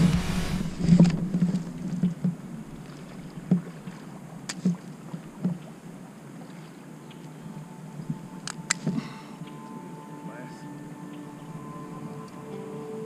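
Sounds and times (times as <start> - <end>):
water lapping against hull: 0.0 - 9.6.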